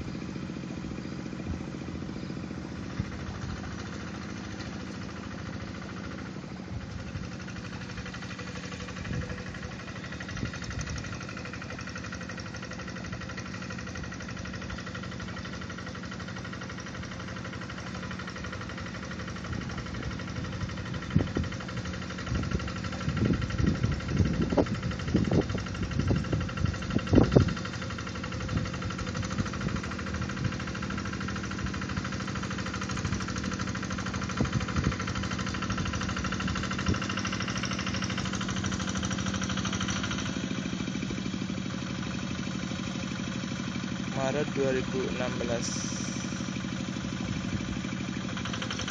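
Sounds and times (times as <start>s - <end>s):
diesel tractor engine running: 0.0s - 48.9s.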